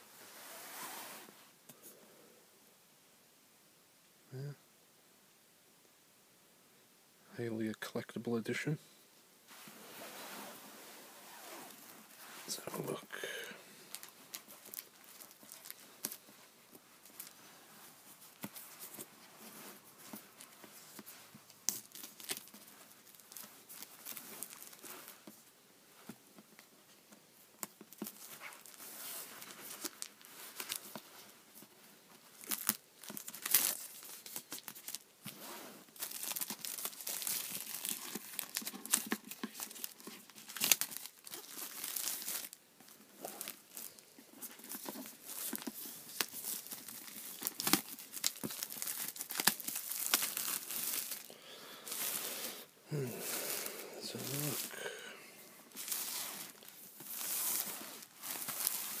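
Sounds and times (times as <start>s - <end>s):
plastic shrink-wrap crinkling: 13.8s - 25.4s, 27.6s - 55.0s, 55.6s - 59.0s
plastic tearing crackles: 13.9s - 16.2s, 21.6s - 24.9s, 32.4s - 35.0s, 36.0s - 42.6s, 44.6s - 52.2s.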